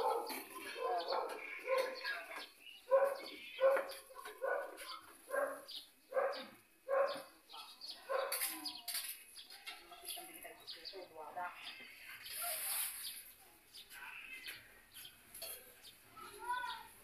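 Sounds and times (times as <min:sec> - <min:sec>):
dog barking: 0:00.0 - 0:02.1, 0:02.9 - 0:08.5.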